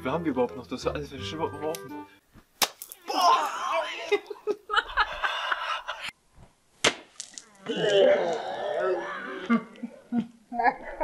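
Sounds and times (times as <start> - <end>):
water balloons smacking: 2.4 - 3.6, 6.8 - 7.5
people laughing: 3.1 - 6.1.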